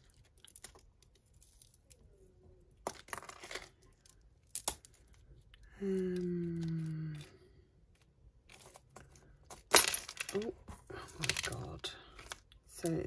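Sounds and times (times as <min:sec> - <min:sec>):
jewellery clinking: 0:00.0 - 0:05.6, 0:08.4 - 0:13.0.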